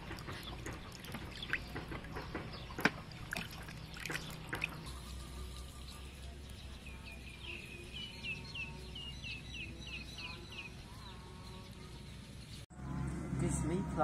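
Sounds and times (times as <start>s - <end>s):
bird chirping: 0.1s - 12.6s.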